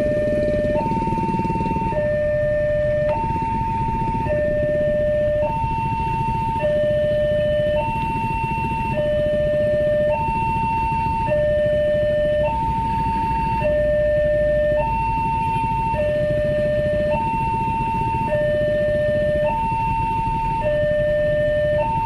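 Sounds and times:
two-tone crossing alarm: 0:00.0 - 0:22.0.

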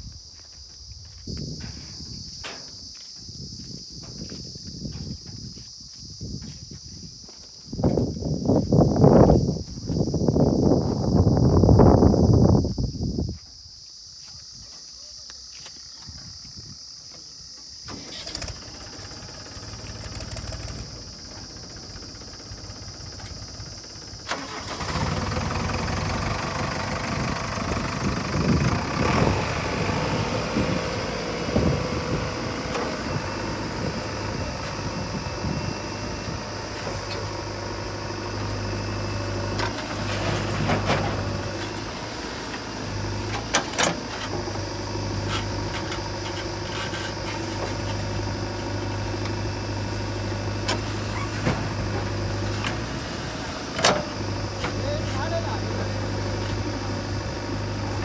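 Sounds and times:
diesel engine revving: 0:17.9 - 0:58.0.

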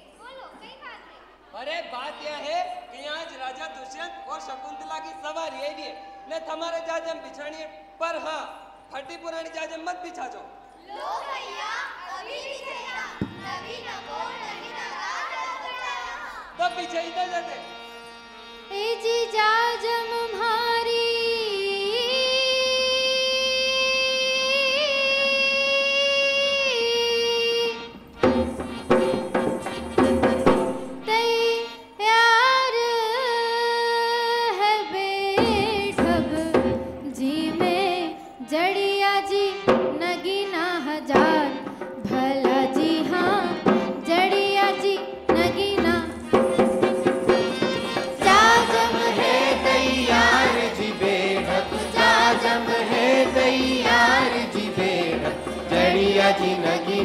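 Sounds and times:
drum beat: 0:28.2 - 0:31.0, 0:45.3 - 0:57.0
person singing folk song: 0:31.1 - 0:46.3, 0:48.0 - 0:57.0.

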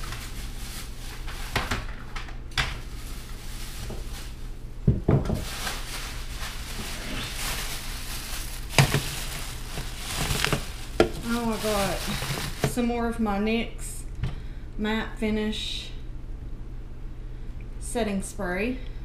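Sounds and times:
plastic bag rustling: 0:00.0 - 0:13.1.

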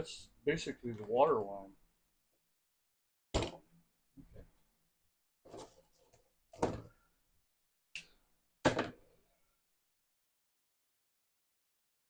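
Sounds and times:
objects knocking and clattering: 0:03.4 - 0:04.5, 0:05.5 - 0:07.0, 0:08.6 - 0:09.1.

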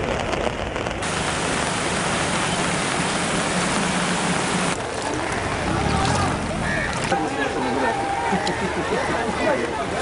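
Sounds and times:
rushing floodwater: 0:01.0 - 0:10.0.

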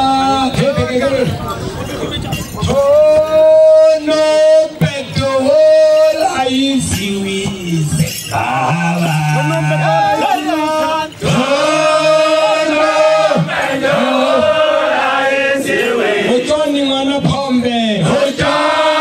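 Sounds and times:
men singing in chanting style: 0:02.7 - 0:16.4, 0:18.0 - 0:19.0.

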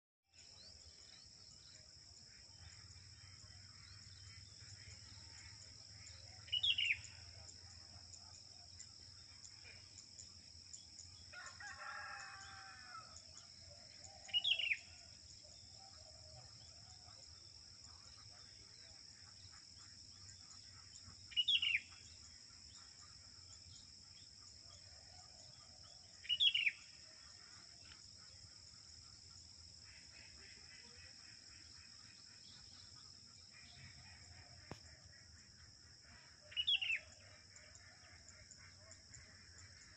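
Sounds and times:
insects droning: 0:00.4 - 0:39.9
faint rooster crow: 0:11.3 - 0:13.4.

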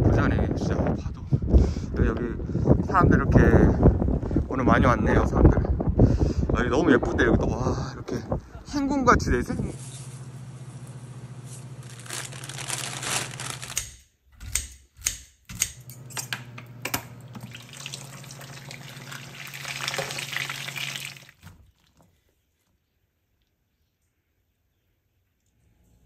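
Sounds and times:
water boiling in a pot: 0:17.3 - 0:22.0
food sizzling in a frying pan: 0:17.7 - 0:21.2.

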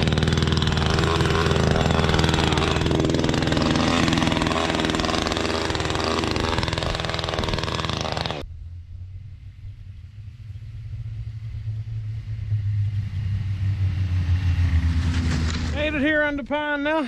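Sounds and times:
snowmobile engine idling: 0:00.0 - 0:08.4.

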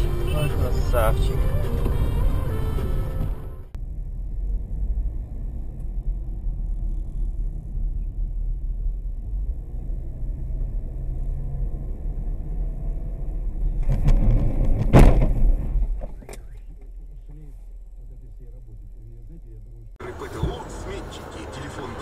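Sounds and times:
car road and engine rumble: 0:00.0 - 0:22.0
hard braking rush: 0:00.0 - 0:22.0
car collision bang: 0:14.7 - 0:16.2.

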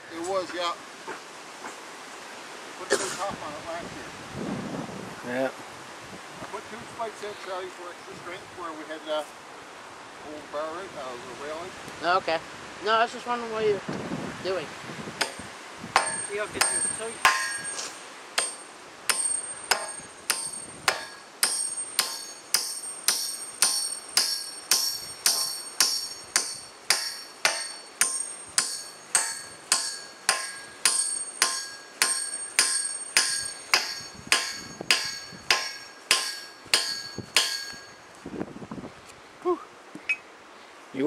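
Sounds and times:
spike maul striking metal: 0:15.2 - 0:15.4, 0:16.0 - 0:38.0.

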